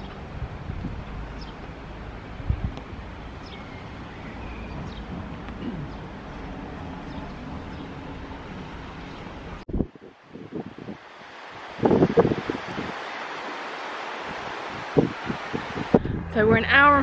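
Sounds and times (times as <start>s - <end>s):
wind rumble on microphone: 0.0s - 17.0s
faint bird chirps: 3.4s - 5.1s.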